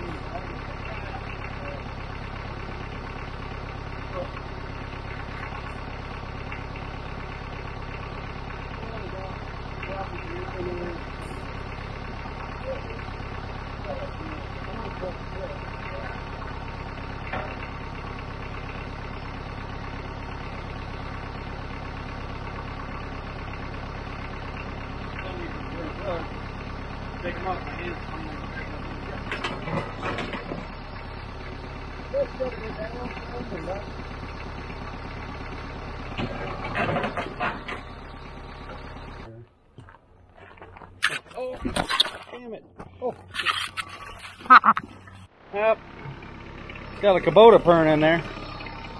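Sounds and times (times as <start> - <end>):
tractor engine idling: 0.0 - 48.9
metallic clanks and scrapes: 36.2 - 37.9, 40.4 - 42.4, 43.2 - 45.2.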